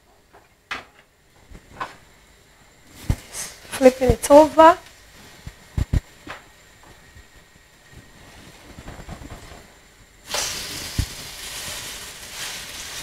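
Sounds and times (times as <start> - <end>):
hot oil sizzling: 10.2 - 13.0.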